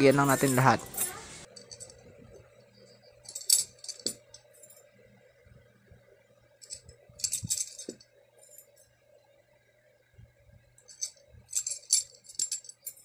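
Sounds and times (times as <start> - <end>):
metal spokes clinking: 0.0 - 2.2, 2.8 - 4.8, 6.6 - 8.8, 10.8 - 13.0.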